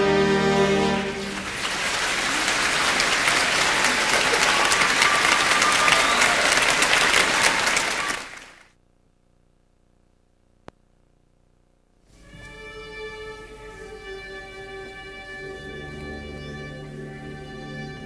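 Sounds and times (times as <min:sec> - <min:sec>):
marching band held chord: 0:00.0 - 0:02.2
audience applause: 0:00.8 - 0:08.7.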